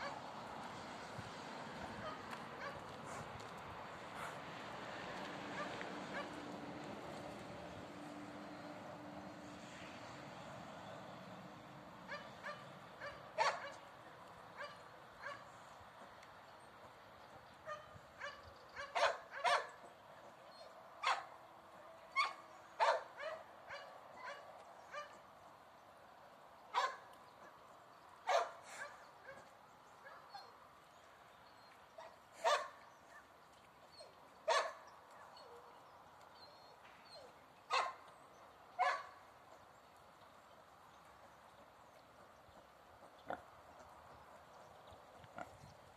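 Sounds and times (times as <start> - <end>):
dog barking: 2.0 - 3.2, 12.1 - 13.8, 14.6 - 15.5, 17.7 - 19.8, 21.0 - 21.3, 22.2 - 25.2, 26.7 - 27.0, 28.3 - 30.5, 32.0 - 33.2, 34.5 - 34.8, 37.2 - 38.0, 38.8 - 39.2.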